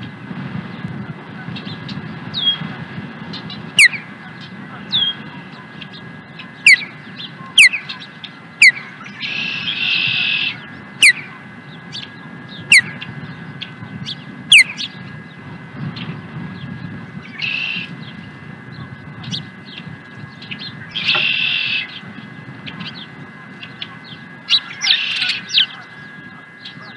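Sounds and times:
raspy bird calls: 3.3 - 15.4, 17.2 - 26.9
sharp downslurred bird whistles: 17.4 - 17.9, 21.0 - 21.9.

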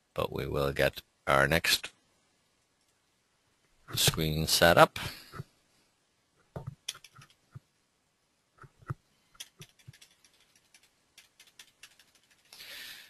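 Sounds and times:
mouse and keyboard clicking: 6.6 - 7.4, 8.8 - 12.6.

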